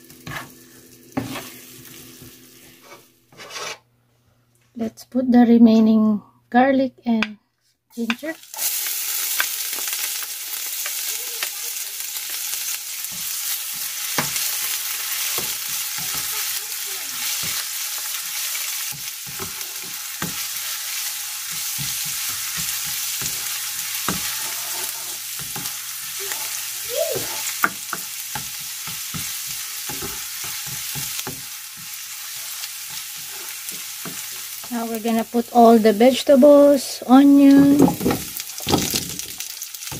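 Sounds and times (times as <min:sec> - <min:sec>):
garlic sizzling in hot oil: 0:00.0 - 0:03.1, 0:08.0 - 0:39.9
spoon knocking and scraping pan: 0:00.1 - 0:00.6, 0:01.2 - 0:03.8, 0:13.0 - 0:16.6, 0:17.2 - 0:26.6, 0:27.2 - 0:34.8, 0:37.4 - 0:39.9.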